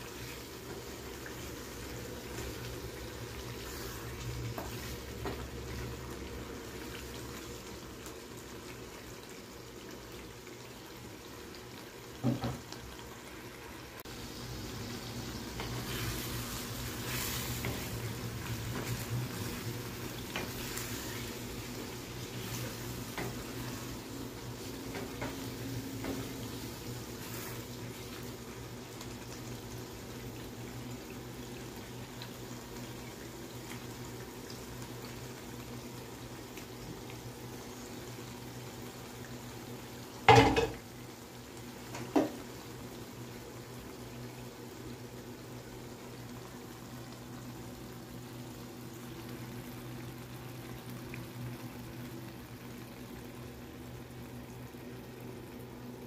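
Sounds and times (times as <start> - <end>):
curry simmering and bubbling: 0.0 - 56.0
spatula stirring in a pan: 14.8 - 28.6.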